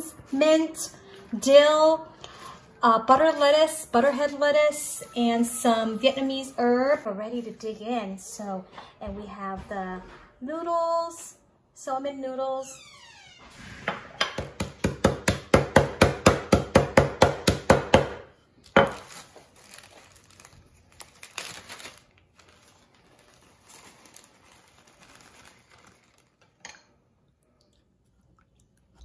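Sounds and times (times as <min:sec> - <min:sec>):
plastic bag crinkling: 0:18.6 - 0:26.7.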